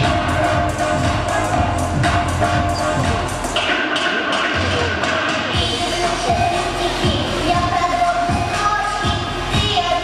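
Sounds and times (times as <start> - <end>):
pop backing track: 0.0 - 10.0
girl singing into microphone: 5.5 - 10.0.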